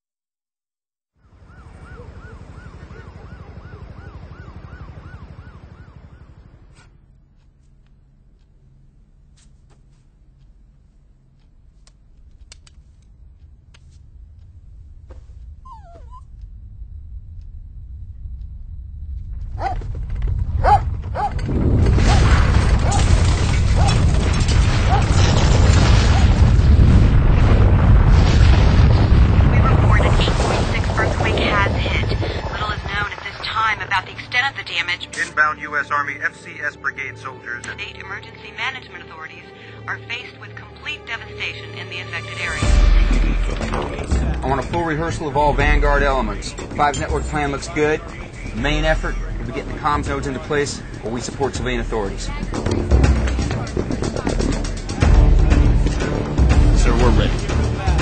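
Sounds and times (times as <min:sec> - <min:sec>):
emergency siren yelping: 0:01.2 - 0:06.8
deep earthquake rumble: 0:12.0 - 0:35.0, 0:41.8 - 0:58.0
helicopter rotor thudding: 0:16.5 - 0:33.8, 0:42.6 - 0:57.8
dog barking: 0:19.6 - 0:19.8, 0:20.6 - 0:21.4
objects rattling: 0:19.6 - 0:26.3.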